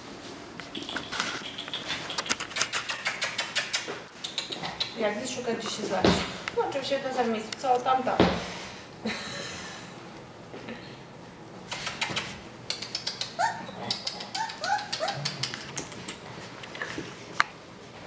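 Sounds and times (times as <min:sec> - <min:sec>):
puppy yipping: 0:13.2 - 0:15.5.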